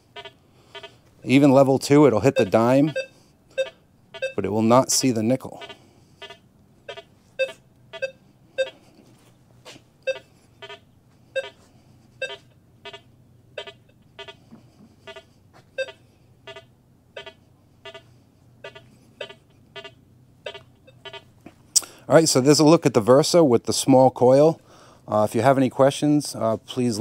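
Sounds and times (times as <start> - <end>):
metal detector beeps: 2.3 - 4.4, 5.6 - 8.8, 10.1 - 10.8, 11.4 - 11.6, 12.2 - 13.0, 13.6 - 14.4, 15.8 - 18.0, 18.6 - 21.3.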